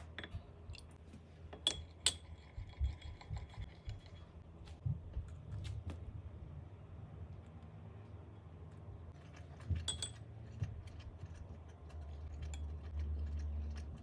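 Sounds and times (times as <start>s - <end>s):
metal spoon clinking glass bowl: 1.6s - 3.4s, 9.8s - 10.3s.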